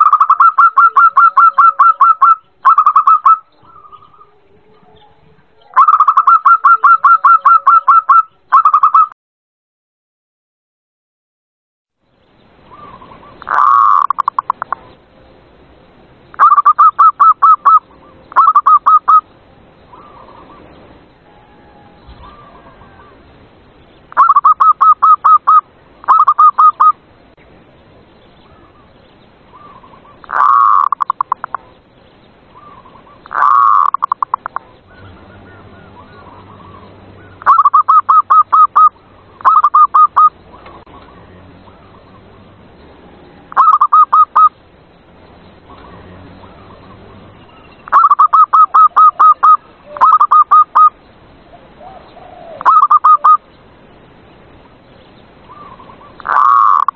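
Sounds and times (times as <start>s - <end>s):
dove cooing: 0.0s - 9.0s, 12.7s - 14.9s, 16.4s - 19.2s, 19.9s - 23.3s, 24.1s - 27.0s, 29.5s - 31.7s, 32.6s - 42.2s, 43.3s - 44.6s, 47.9s - 53.4s, 55.5s - 56.9s.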